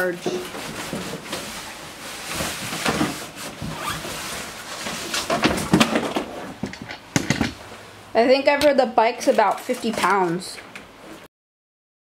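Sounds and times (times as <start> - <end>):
cardboard scraping and rustling: 0.3 - 6.6
bike knocks and rattles: 5.2 - 7.6.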